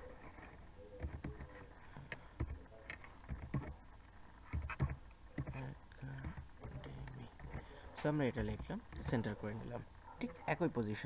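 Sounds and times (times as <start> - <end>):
laptop keyboard typing: 0.0 - 7.7.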